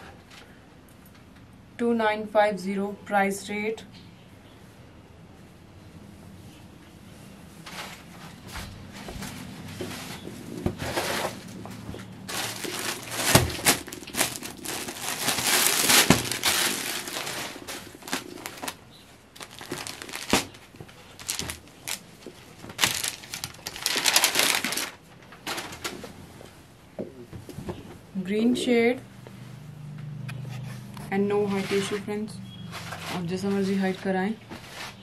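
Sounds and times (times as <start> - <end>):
fabric rustling and crinkling: 7.6 - 26.7.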